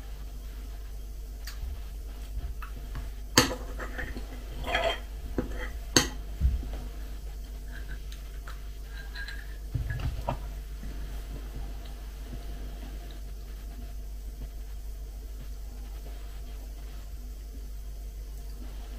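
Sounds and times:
cutlery clinking against bowl: 0:03.4 - 0:06.2, 0:08.9 - 0:10.4.

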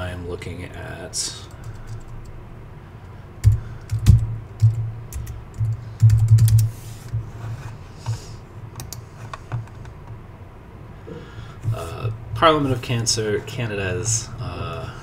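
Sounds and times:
keyboard typing: 0:03.4 - 0:07.2.

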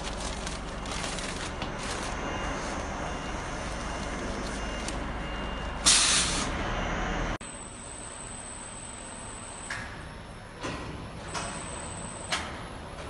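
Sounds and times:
packing machine humming: 0:00.0 - 0:13.0.

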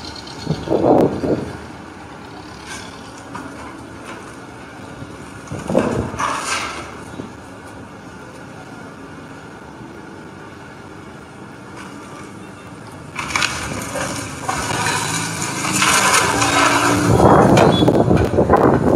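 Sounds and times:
excavator diesel engine running: 0:00.0 - 0:18.9
debris scraping and crashing: 0:05.4 - 0:07.4, 0:13.0 - 0:18.9.

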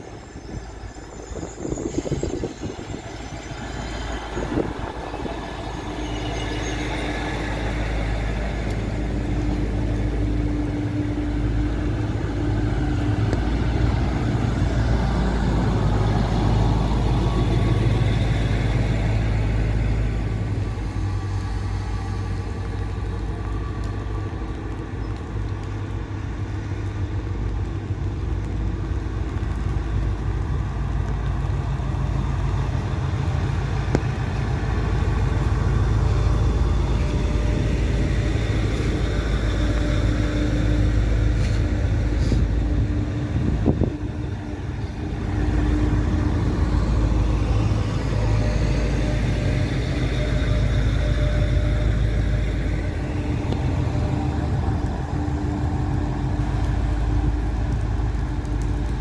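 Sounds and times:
high squeal: 0:00.0 - 0:09.6
diesel train engines: 0:00.0 - 0:59.0.

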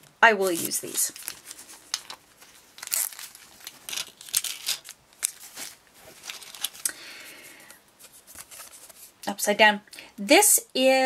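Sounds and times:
plastic bags crinkling: 0:00.4 - 0:09.1.

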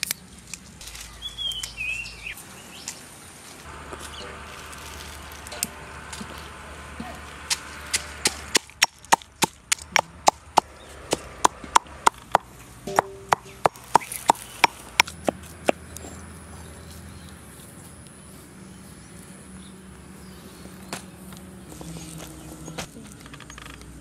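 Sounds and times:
pestle pounding in stone mortar: 0:07.4 - 0:15.4.

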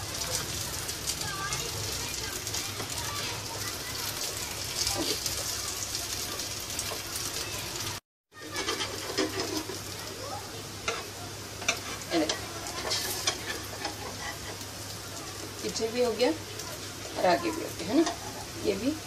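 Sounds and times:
food sizzling in a frying pan: 0:00.0 - 0:19.0
spatula scraping a pan: 0:08.3 - 0:10.2, 0:10.8 - 0:16.2, 0:16.8 - 0:18.8.

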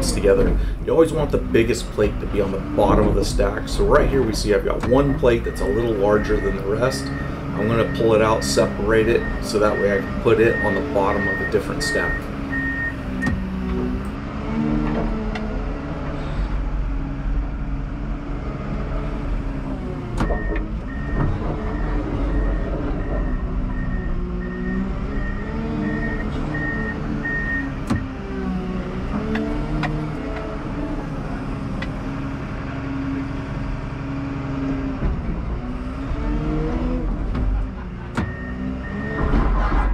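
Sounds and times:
diesel engine running: 0:00.0 - 0:39.9
reversing alarm beeping: 0:04.7 - 0:13.4, 0:20.2 - 0:27.7, 0:38.2 - 0:39.3.

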